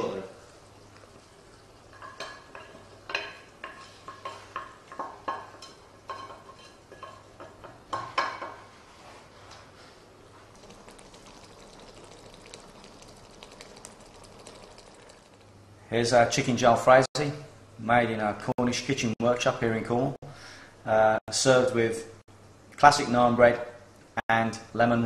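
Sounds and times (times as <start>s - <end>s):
sauce simmering crackle: 0.3s - 4.1s, 10.4s - 15.7s.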